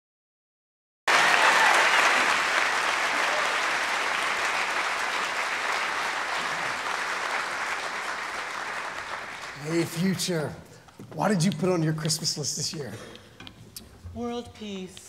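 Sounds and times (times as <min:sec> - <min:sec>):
audience applauding: 0:01.1 - 0:10.6.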